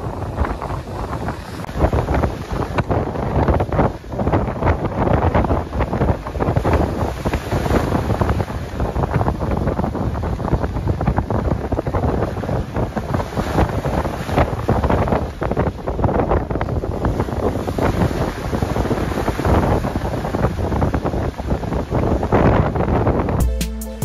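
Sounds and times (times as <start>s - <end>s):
waves breaking on shore: 0.0s - 23.4s
wind buffeting microphone: 0.0s - 23.4s.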